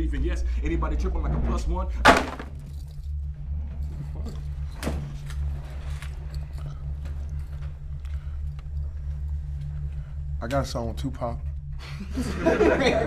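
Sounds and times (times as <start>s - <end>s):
low hum: 0.0s - 13.0s
sharp knock: 2.0s - 2.5s.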